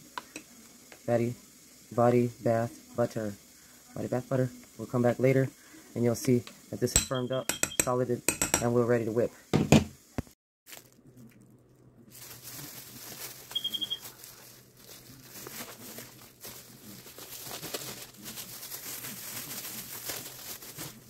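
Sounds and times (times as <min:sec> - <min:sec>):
short high beeps: 0:07.1 - 0:07.6, 0:13.5 - 0:14.0
plastic bag crinkling: 0:10.7 - 0:21.0.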